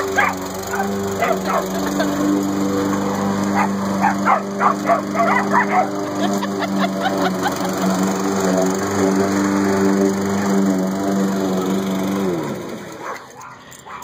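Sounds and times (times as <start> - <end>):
dogs barking and yipping: 0.0 - 7.8, 12.9 - 14.0
lawn mower engine droning: 0.0 - 14.0.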